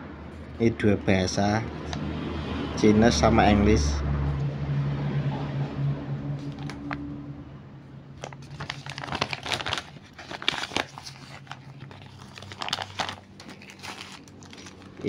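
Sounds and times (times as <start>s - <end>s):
plastic packaging crinkling: 6.4s - 7.0s, 8.2s - 15.0s.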